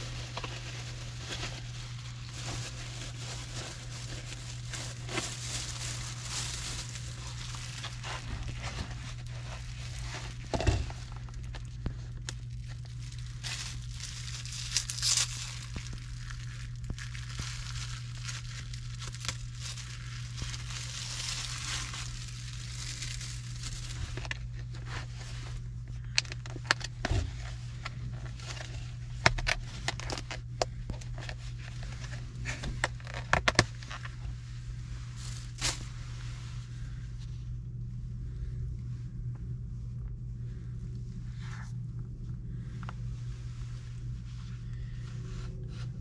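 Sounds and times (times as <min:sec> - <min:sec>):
plastic wrapper crinkling: 0:00.0 - 0:34.3, 0:35.1 - 0:35.9
steady low hum: 0:00.0 - 0:46.0.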